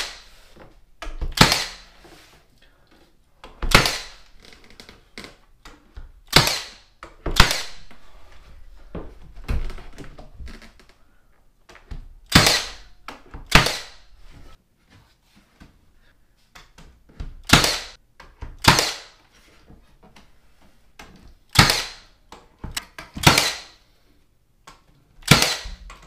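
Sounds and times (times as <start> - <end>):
nail gun firing: 1.3 - 1.8, 3.6 - 4.2, 6.3 - 7.8, 12.3 - 12.9, 13.5 - 14.0, 17.4 - 18.0, 18.6 - 19.2, 21.5 - 22.0, 23.2 - 23.8, 25.2 - 25.9.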